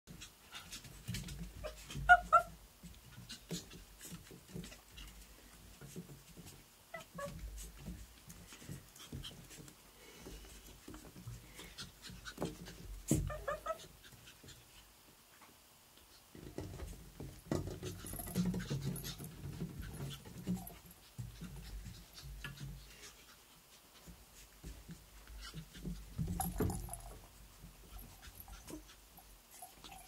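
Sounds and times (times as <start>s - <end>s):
puppies yipping: 1.6s - 2.5s.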